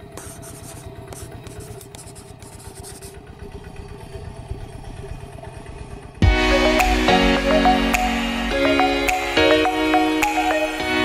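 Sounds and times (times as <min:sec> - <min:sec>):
single-cylinder engine running: 0:00.0 - 0:06.8.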